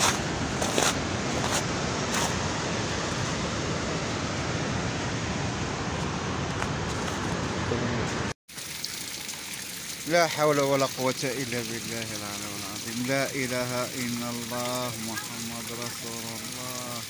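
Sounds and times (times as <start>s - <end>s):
rushing storm noise: 0.0s - 8.4s.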